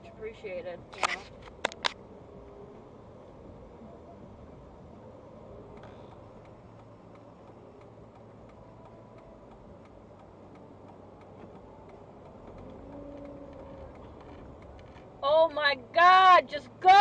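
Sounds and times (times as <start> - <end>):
car cabin rumble: 0.0 - 17.0
light ticking: 5.5 - 15.2.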